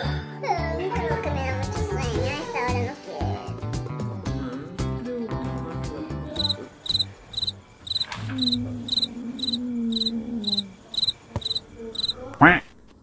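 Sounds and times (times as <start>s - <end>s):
music: 0.0s - 12.2s
cricket chirping: 6.4s - 12.5s.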